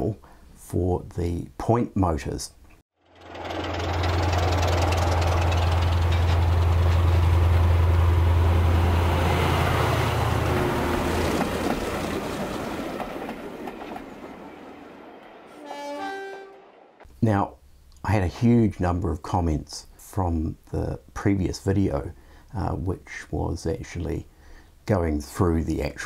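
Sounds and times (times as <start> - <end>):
model train wheels rumbling: 3.0 - 13.9
locomotive drone: 3.0 - 17.0
pitched toot: 15.6 - 16.7.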